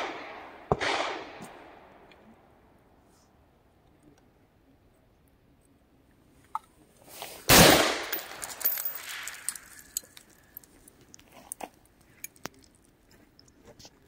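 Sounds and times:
rifle shot with echo: 0.0s - 2.1s, 7.5s - 9.3s.

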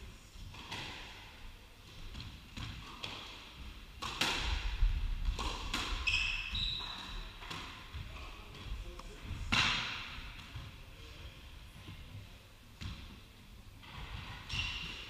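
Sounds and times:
squash ball smacks: 4.0s - 4.7s
court shoes squeaking: 5.3s - 8.7s, 13.8s - 15.0s.

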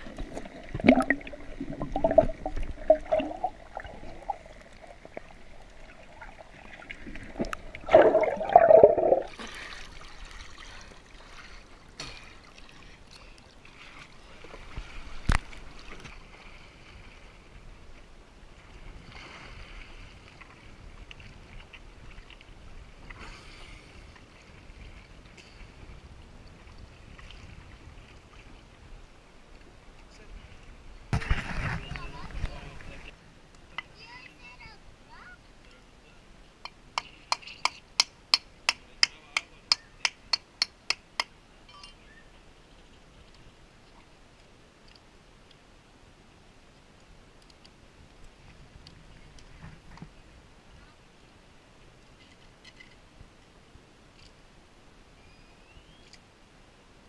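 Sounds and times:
water splashes: 0.0s - 17.4s
small drips and clicks: 0.2s - 9.3s, 43.2s - 45.6s, 46.7s - 50.1s.

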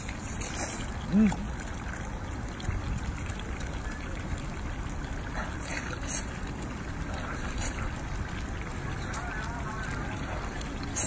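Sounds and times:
wet slurping: 0.0s - 2.1s, 5.2s - 11.0s.

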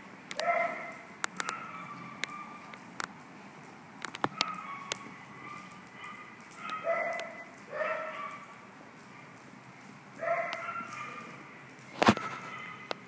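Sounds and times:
dog barking: 0.4s - 2.6s, 4.3s - 8.5s, 10.2s - 11.4s, 12.2s - 12.9s.

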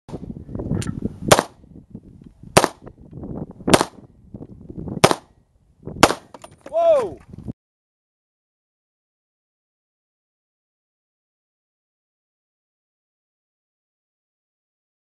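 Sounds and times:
rifle shots: 1.3s - 1.6s, 2.6s - 2.8s, 3.7s - 4.0s, 5.0s - 5.3s, 6.0s - 6.4s.

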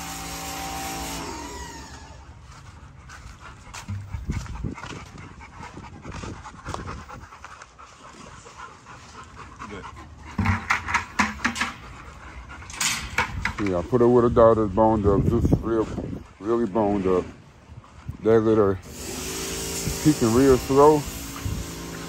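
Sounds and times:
dog panting: 2.3s - 18.8s.

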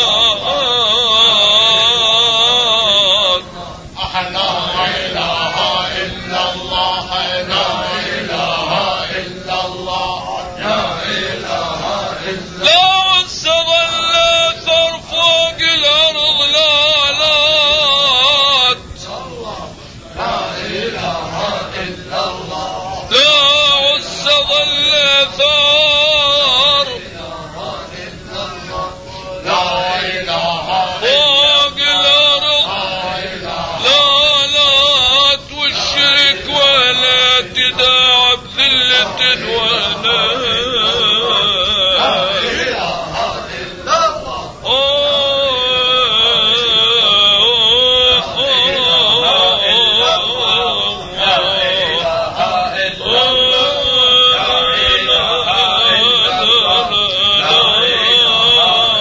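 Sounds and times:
man chanting: 0.0s - 59.0s
breaths: 19.8s - 20.1s.

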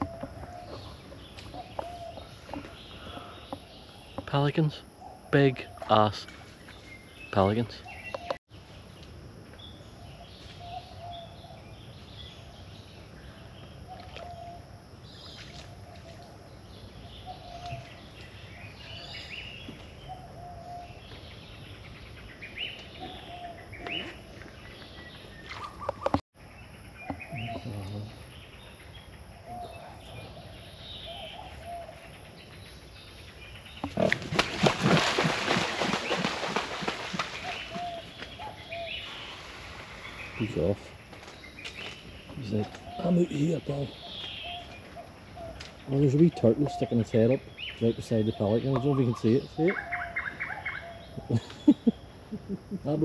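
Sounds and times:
birds chirping: 0.0s - 53.0s.

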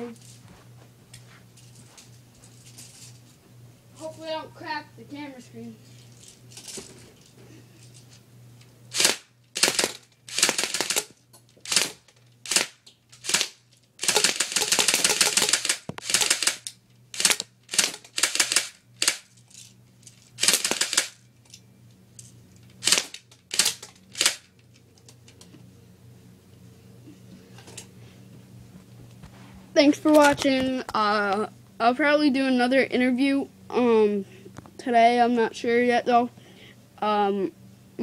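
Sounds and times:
airsoft gun firing bursts: 8.9s - 16.6s, 17.2s - 19.2s, 20.4s - 21.2s, 22.8s - 24.4s.

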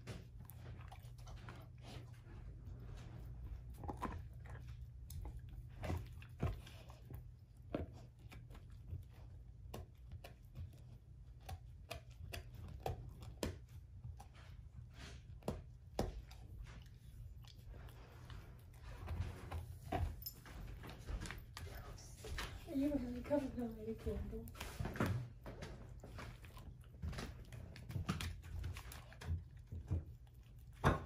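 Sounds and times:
dog chewing crunchy bone: 0.0s - 31.0s.

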